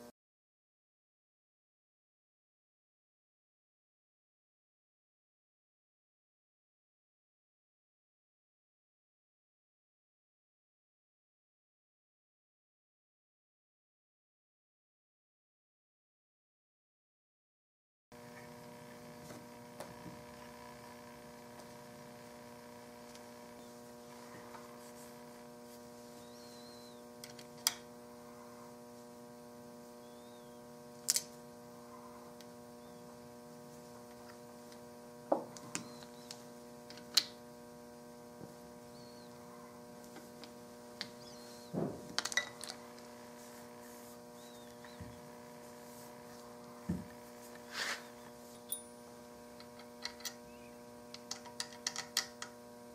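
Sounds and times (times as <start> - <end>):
steady electrical hum: 18.2 - 52.9
metal parts clicking and tapping: 49.6 - 50.4, 51.2 - 52.6.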